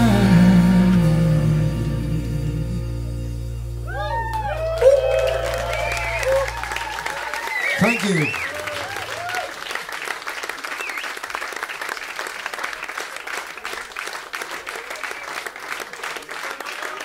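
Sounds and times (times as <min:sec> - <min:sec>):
person whooping: 0:03.9 - 0:09.6
audience applauding: 0:03.9 - 0:17.0.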